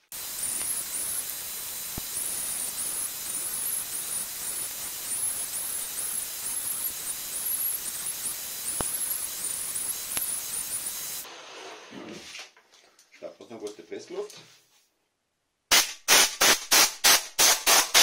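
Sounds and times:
electric drill sanding wood: 0.0s - 11.3s.

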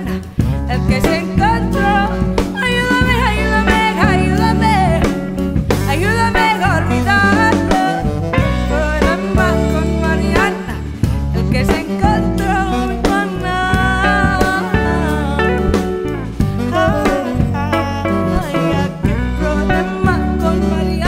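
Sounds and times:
bending lead melody: 0.0s - 21.0s
drum kit: 0.0s - 21.0s
electric bass: 0.0s - 21.0s
guitar: 0.0s - 21.0s
tenor saxophone: 0.0s - 21.0s.

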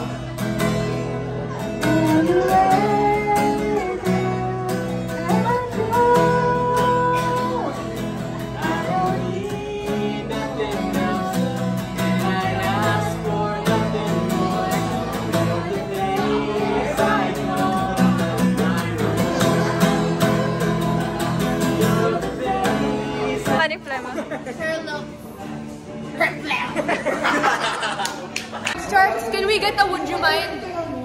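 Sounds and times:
strummed acoustic guitar: 0.0s - 28.6s
woman singing: 1.8s - 7.8s.

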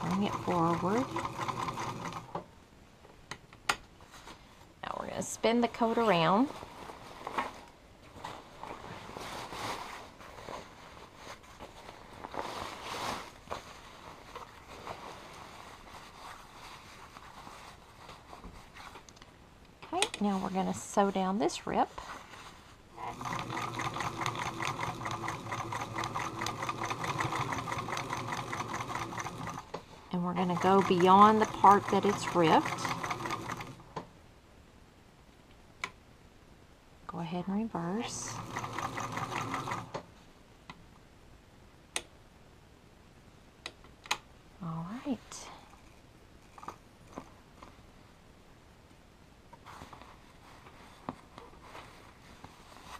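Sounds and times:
coat fabric rustling: 5.4s - 19.1s, 21.8s - 22.9s, 49.6s - 52.9s.

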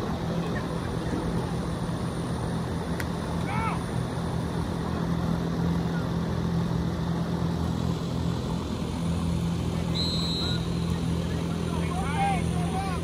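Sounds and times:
low engine drone: 0.0s - 13.0s
short high whistle blast: 9.9s - 10.7s.

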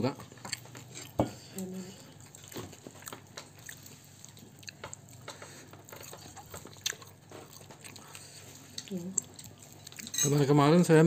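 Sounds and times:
chewing: 0.1s - 10.6s.

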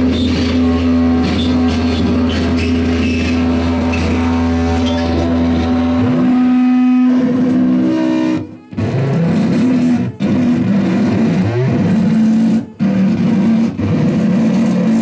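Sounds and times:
sweeping pitch glides: 0.0s - 8.5s
synthesizer drone with low bass: 0.0s - 15.0s.

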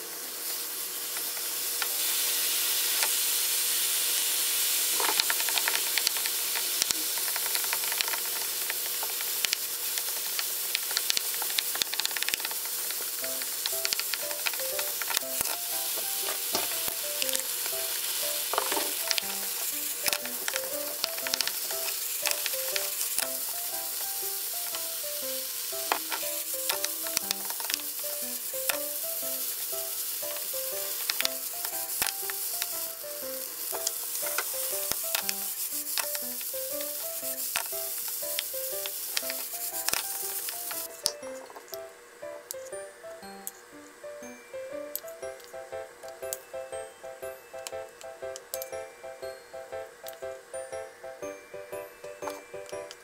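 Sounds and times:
food sizzling in a frying pan: 0.0s - 53.0s
soft background music: 13.2s - 53.0s.

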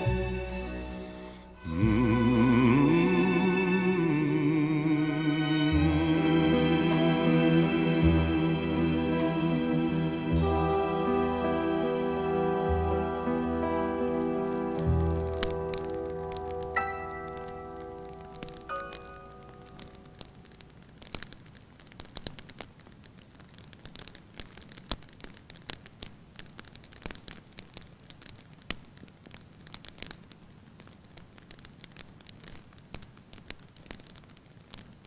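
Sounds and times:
low steady hiss: 0.0s - 35.0s
burning grass crackling: 14.1s - 35.0s
sharp pops: 14.3s - 35.0s.

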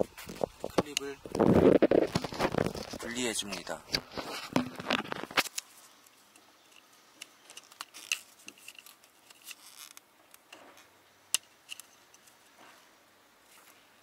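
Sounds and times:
handling noise: 0.0s - 6.1s.

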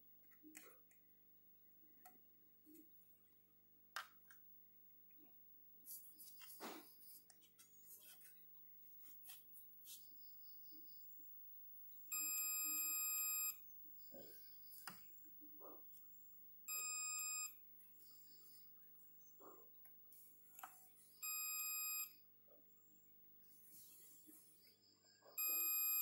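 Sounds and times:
multimeter continuity beep: 12.1s - 13.7s, 16.7s - 17.6s, 21.2s - 22.2s, 25.4s - 26.0s.

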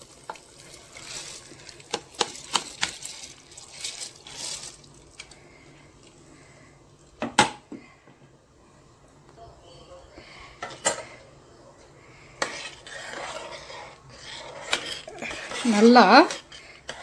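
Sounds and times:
rice and lentils pouring into water: 0.0s - 5.2s.

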